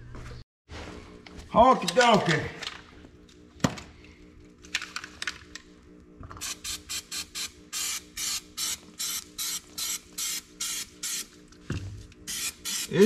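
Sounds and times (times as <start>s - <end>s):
aerosol can spraying bursts: 12.3s - 13.0s.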